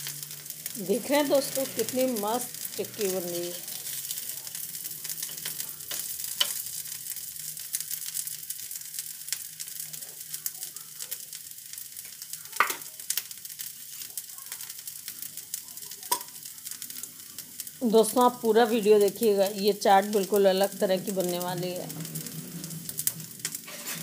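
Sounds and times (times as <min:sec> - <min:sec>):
metal spatula on pan: 0:00.0 - 0:10.5, 0:12.0 - 0:24.0
patties sizzling and crackling: 0:00.0 - 0:24.0.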